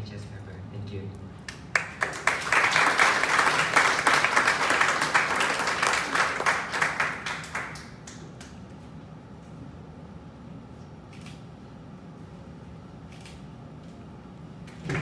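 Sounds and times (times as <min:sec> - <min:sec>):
audience applauding: 0:01.7 - 0:08.2, 0:14.8 - 0:15.0.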